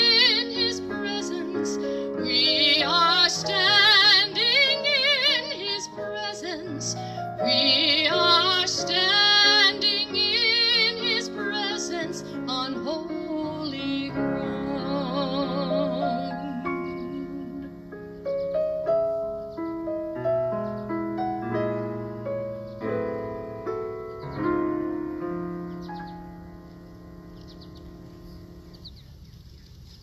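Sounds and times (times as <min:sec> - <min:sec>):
woman singing with vibrato: 0:00.0 - 0:17.8.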